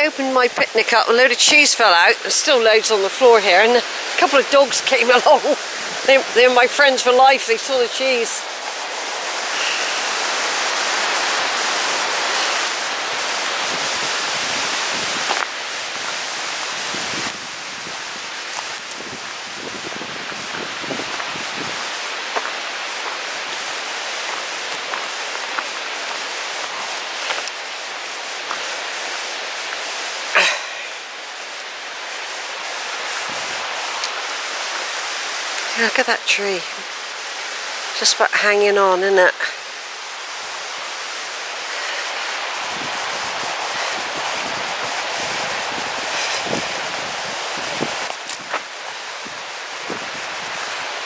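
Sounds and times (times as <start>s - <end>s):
river rushing over rocks: 0.0s - 51.0s
footsteps on gravel: 19.7s - 27.6s, 48.1s - 49.0s.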